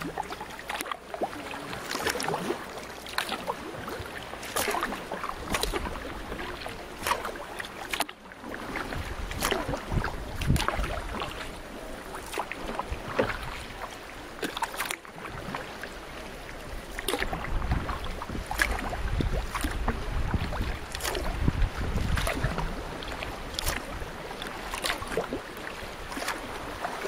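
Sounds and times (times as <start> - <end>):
paddle strokes splashing water: 0.0 - 27.0
wind rumbling on microphone: 8.4 - 13.8, 15.2 - 27.0.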